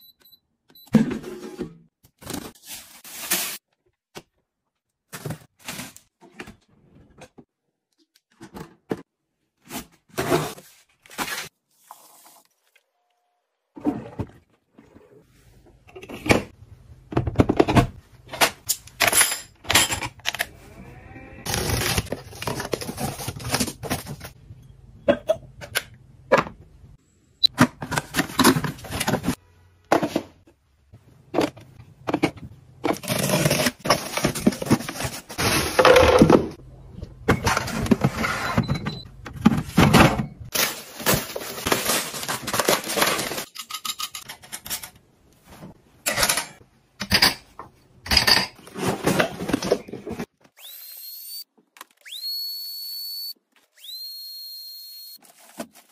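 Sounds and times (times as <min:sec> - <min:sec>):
packaging rustling and crinkling: 0:40.5 - 0:43.5, 0:55.2 - 0:55.9.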